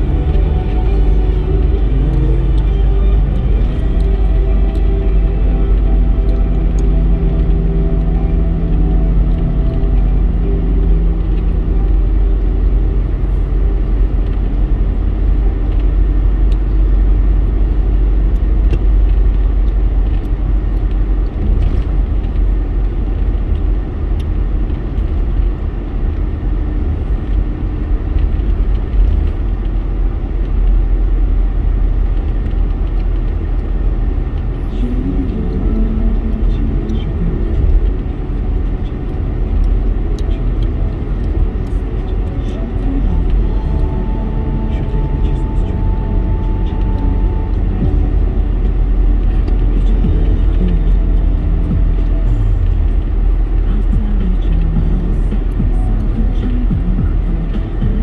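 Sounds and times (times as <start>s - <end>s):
music with held notes: 0.0s - 20.8s, 34.5s - 58.0s
car engine and tyre rumble: 0.0s - 58.0s.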